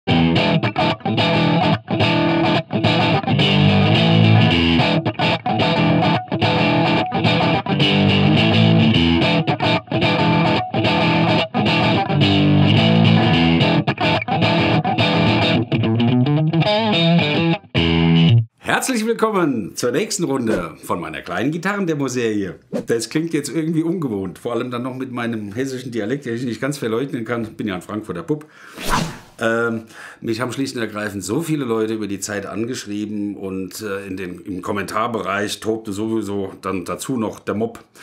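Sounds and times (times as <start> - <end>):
distorted electric guitar riff: 0.1 - 18.4.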